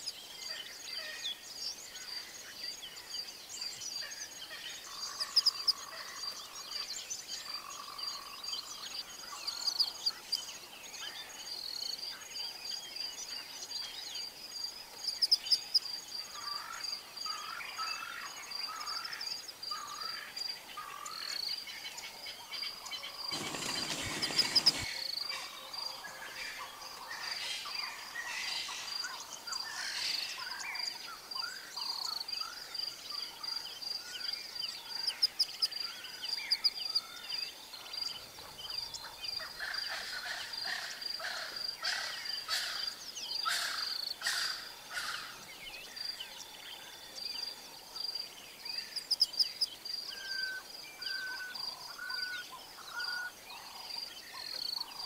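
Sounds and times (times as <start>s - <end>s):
bird chirps and calls: 20.8s - 25.6s, 48.6s - 55.0s
high insect trill: 23.3s - 25.2s.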